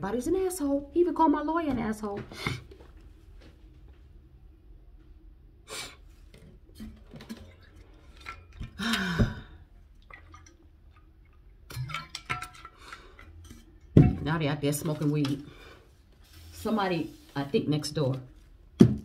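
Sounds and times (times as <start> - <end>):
person sighing: 8.8 - 9.6.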